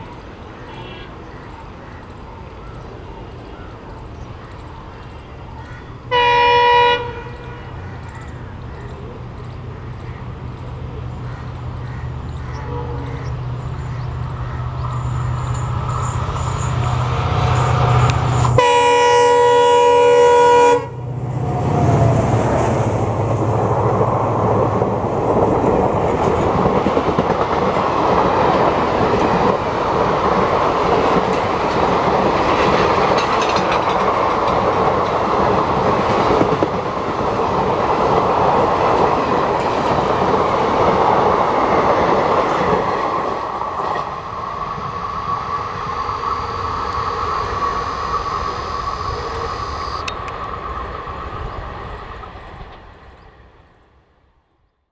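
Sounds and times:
locomotive horn blast: 0:06.1 - 0:07.8, 0:12.6 - 0:13.2, 0:17.8 - 0:21.2
train wheels clattering on rails: 0:22.0 - 0:44.4.

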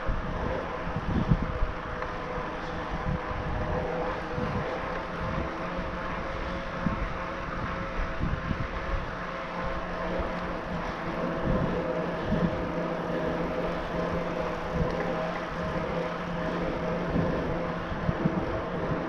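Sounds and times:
hum from bike drive and tyres: 0:00.0 - 0:19.0
wind buffeting microphone: 0:00.0 - 0:19.0.

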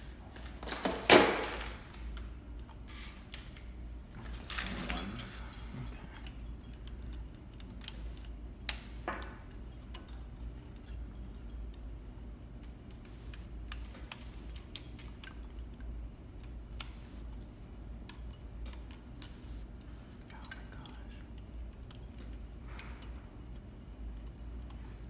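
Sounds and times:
small metal clicks and taps: 0:12.5 - 0:25.0.

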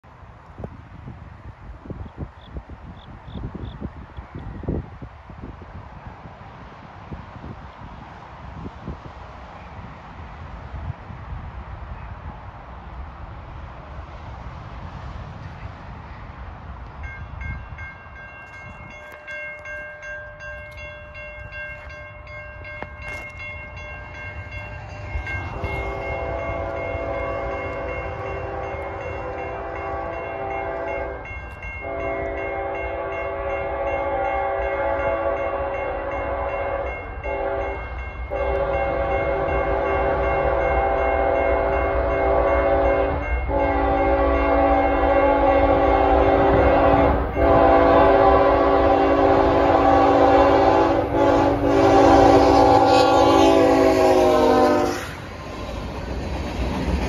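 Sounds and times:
train rumbling: 0:00.0 - 0:57.0
locomotive air horn blasts: 0:25.4 - 0:55.2.

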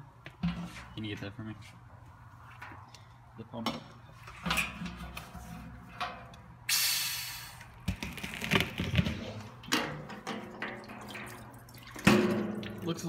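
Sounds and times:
sudden hiss: 0:06.7 - 0:07.6.

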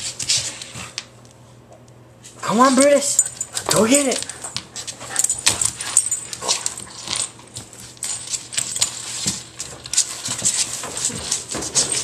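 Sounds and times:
collar tags jingling: 0:03.0 - 0:09.7
dog claws scratching wooden floor: 0:03.2 - 0:12.0.

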